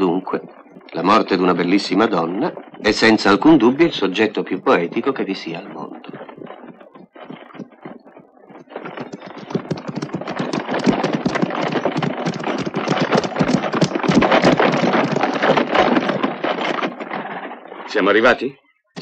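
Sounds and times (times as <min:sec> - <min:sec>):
hooves clip-clopping: 0:00.0 - 0:18.4.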